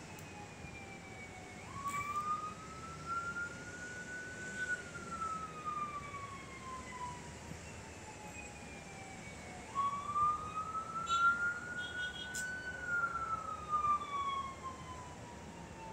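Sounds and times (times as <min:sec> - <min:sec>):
emergency siren wailing: 0:00.0 - 0:15.9
traffic hum: 0:00.0 - 0:15.9.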